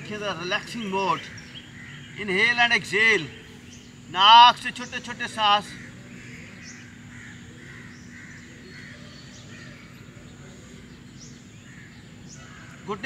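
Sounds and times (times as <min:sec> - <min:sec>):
crows cawing faintly: 0:00.0 - 0:02.4, 0:05.5 - 0:10.7, 0:11.6 - 0:13.0.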